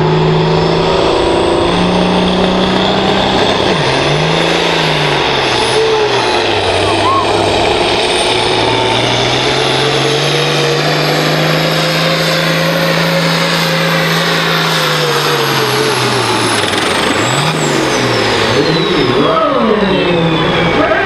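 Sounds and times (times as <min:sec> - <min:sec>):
high whine: 0:00.0 - 0:10.2
diesel tractor engine at full throttle: 0:00.0 - 0:21.0.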